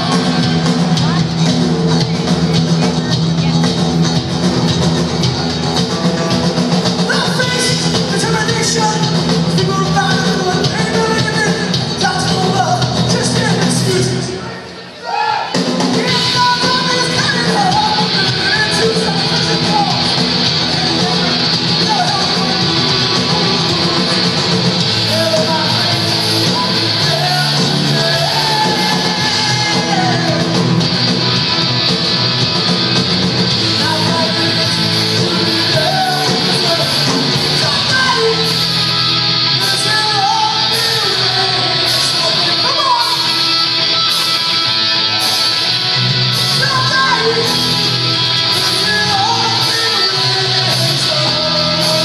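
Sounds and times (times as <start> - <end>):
punk rock band playing: 0.0 - 14.8, 15.4 - 52.0
shouted singing: 15.0 - 30.9.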